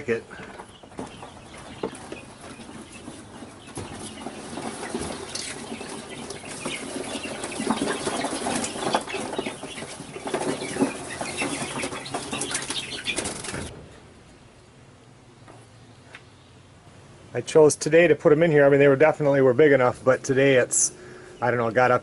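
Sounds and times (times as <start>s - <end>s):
chickens flapping wings: 0.3s - 13.8s.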